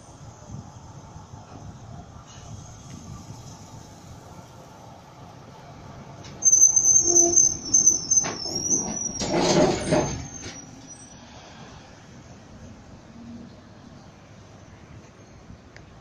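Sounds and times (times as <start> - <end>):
tram rumbling past: 0.0 - 16.0
tram wheels squealing on rails: 6.2 - 11.9.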